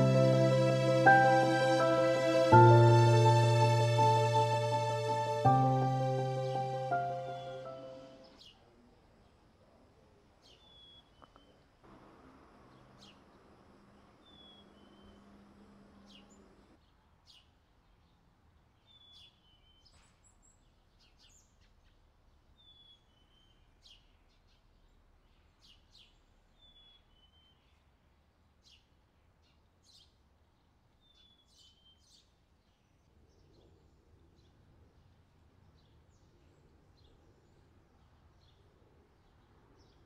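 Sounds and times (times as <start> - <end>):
low hum: 0.0 - 8.2.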